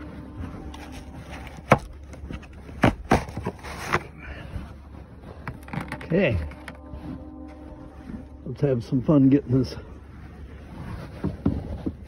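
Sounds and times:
rubbing and handling noise: 0:00.0 - 0:12.0.

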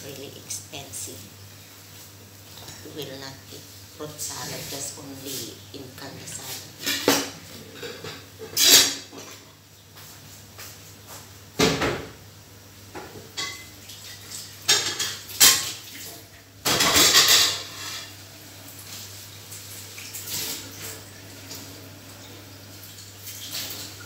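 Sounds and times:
dishes and cutlery clattering: 0:06.8 - 0:09.4, 0:14.6 - 0:15.8, 0:16.6 - 0:18.2.

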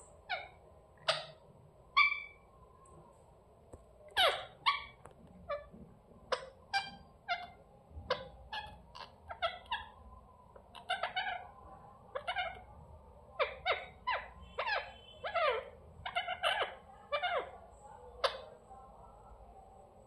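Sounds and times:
parakeets calling: 0:00.0 - 0:02.5, 0:04.2 - 0:05.7, 0:06.3 - 0:10.0, 0:10.7 - 0:12.7, 0:13.3 - 0:17.6.

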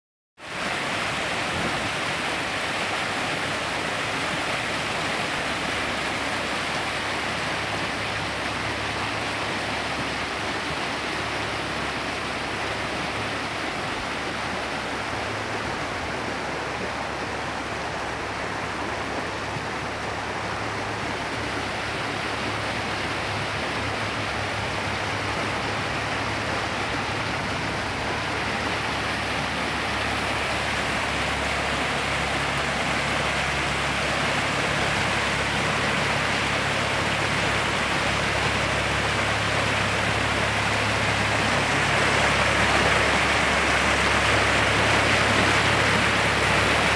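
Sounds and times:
stream rushing over rapids: 0:00.4 - 0:46.9.

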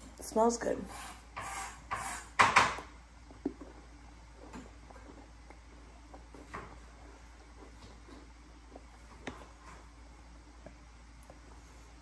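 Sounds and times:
quiet chewing: 0:03.2 - 0:12.0.

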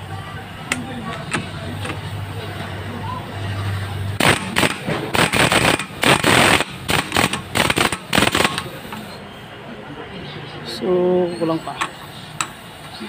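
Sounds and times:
impact wrench bursts: 0:04.2 - 0:09.2.

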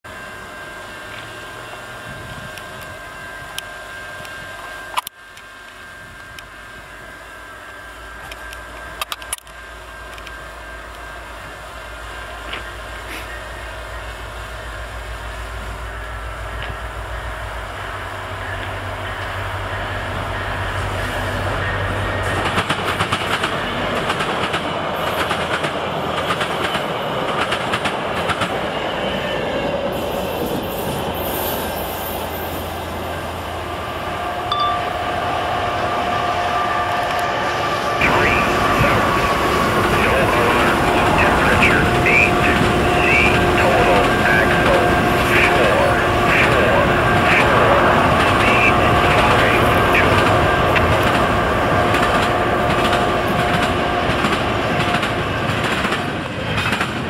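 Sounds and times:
locomotive engine drone: 0:00.1 - 0:57.0
train wheels clicking on rails: 0:12.3 - 0:13.6, 0:18.3 - 0:29.0, 0:38.0 - 0:57.0.

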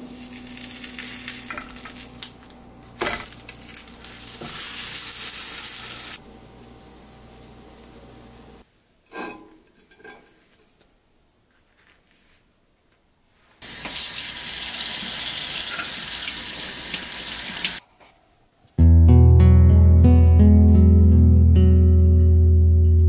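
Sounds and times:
toast frying in a pan: 0:00.0 - 0:08.6, 0:13.6 - 0:17.8
tap water running into sink: 0:13.7 - 0:17.8.

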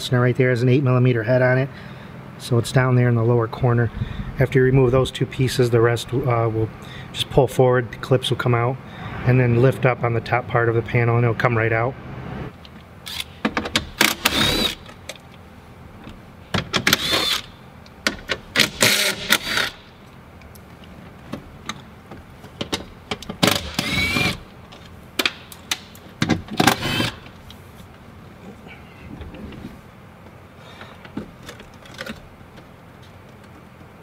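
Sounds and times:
cordless drill whining: 0:14.0 - 0:14.8, 0:16.9 - 0:17.5, 0:23.7 - 0:24.4, 0:26.7 - 0:27.2.

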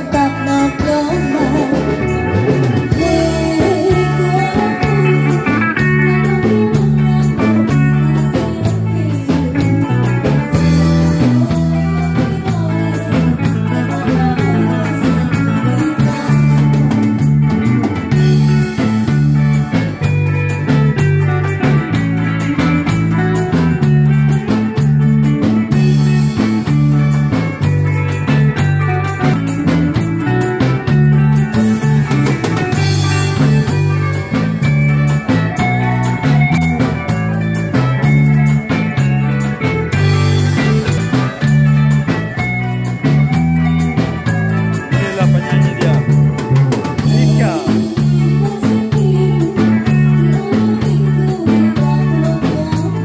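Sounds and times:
woman singing into microphone: 0:00.0 - 0:16.7, 0:47.2 - 0:53.0
repeating low bass line: 0:00.0 - 0:51.3
electric guitar: 0:00.0 - 0:53.0.

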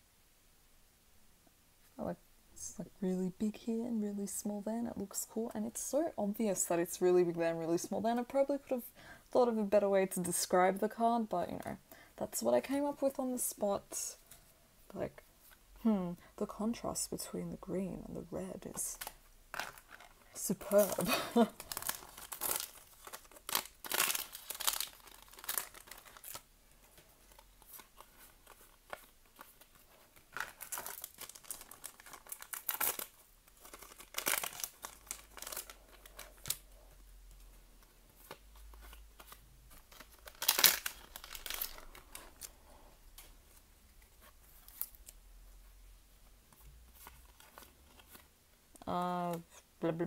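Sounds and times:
foil wrapper crinkling and tearing: 0:19.0 - 0:36.8, 0:38.2 - 0:43.3
trading cards handled: 0:46.5 - 0:48.3.

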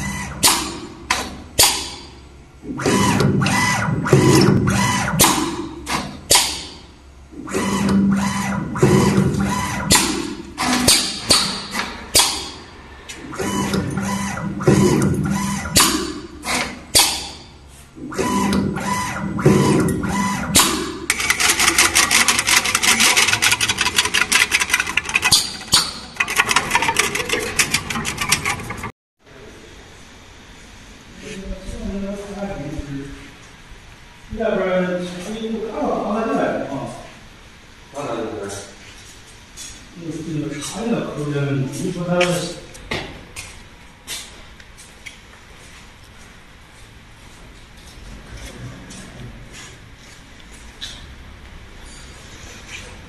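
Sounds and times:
machine motors whirring: 0:00.0 - 0:01.3, 0:02.6 - 0:06.0, 0:07.3 - 0:12.3, 0:12.9 - 0:16.8, 0:18.0 - 0:28.9.

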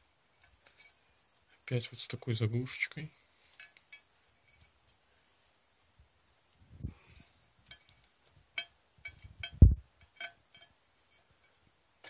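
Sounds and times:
metallic clinks of valve parts: 0:07.7 - 0:11.5.

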